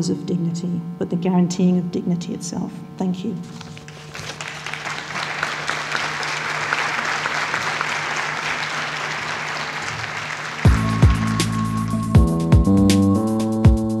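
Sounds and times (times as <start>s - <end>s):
audience applauding: 3.9s - 12.0s
electronic music with heavy beat: 10.7s - 13.9s.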